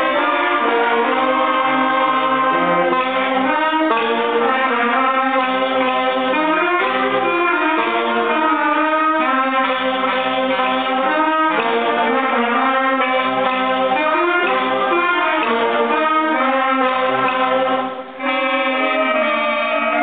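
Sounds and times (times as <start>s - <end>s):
concert band playing: 0.0s - 20.0s.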